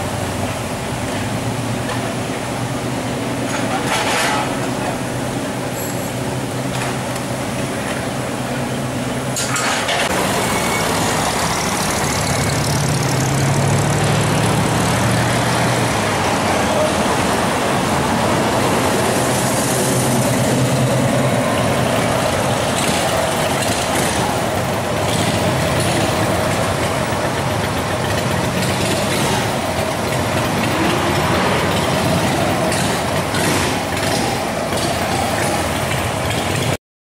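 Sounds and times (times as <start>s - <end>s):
engine humming low: 0.0s - 36.8s
vehicles idling in traffic: 0.0s - 36.8s.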